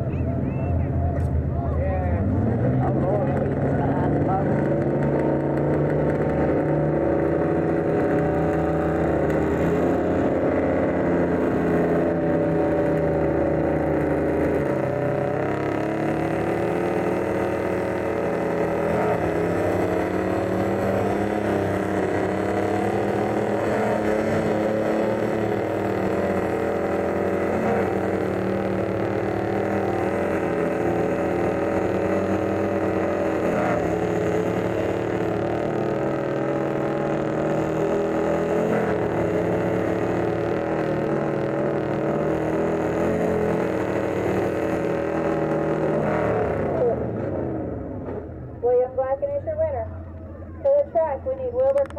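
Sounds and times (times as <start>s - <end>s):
truck engines at full throttle: 0.0s - 51.9s.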